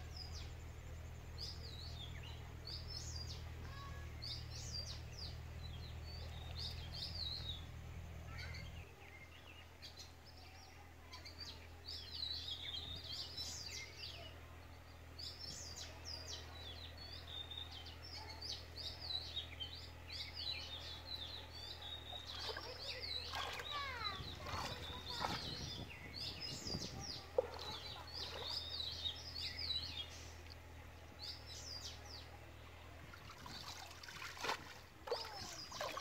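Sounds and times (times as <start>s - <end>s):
low steady hum: 0.0s - 36.0s
small birds chirping: 0.0s - 36.0s.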